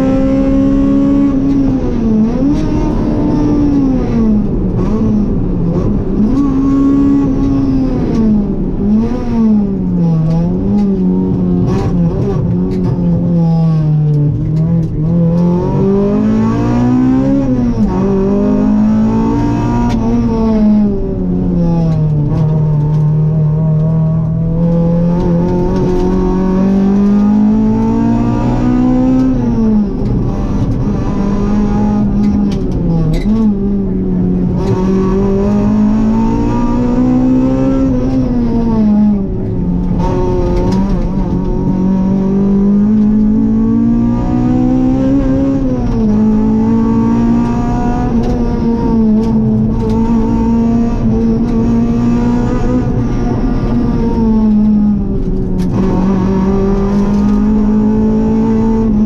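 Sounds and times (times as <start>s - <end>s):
rally car engine revving: 0.0s - 59.0s
sharp clicks and knocks: 28.9s - 33.8s, 39.4s - 43.6s, 47.5s - 59.0s.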